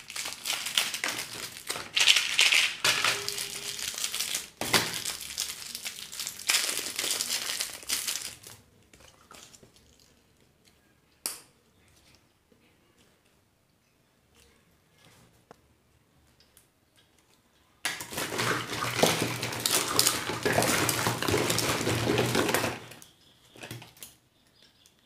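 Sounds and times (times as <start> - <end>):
wrappers crinkling: 0.0 - 10.2, 18.0 - 23.0.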